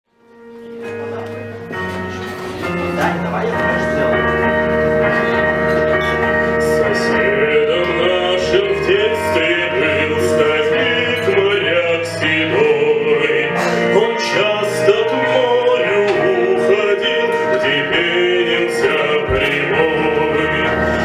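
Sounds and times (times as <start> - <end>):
instrumental accompaniment chords: 0.1 - 21.0
man singing slow melody: 6.4 - 21.0.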